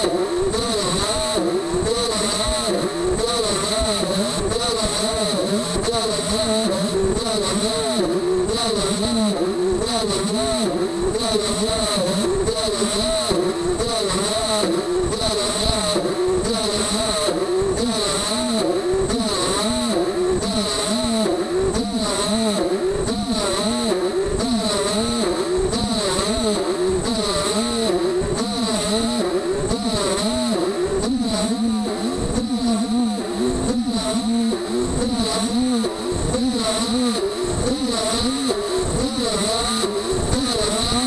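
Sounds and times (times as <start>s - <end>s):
steady high whine: 23.9s - 41.0s.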